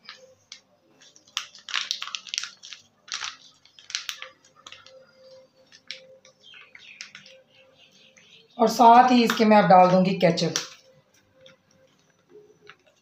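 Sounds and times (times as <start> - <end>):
plastic pouch crinkling: 0.1 - 7.4.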